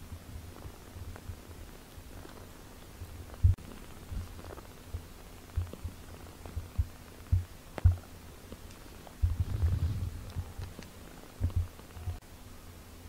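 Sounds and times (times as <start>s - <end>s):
cat purring: 0.0s - 12.2s
kitten suckling with soft thumps: 2.2s - 11.8s.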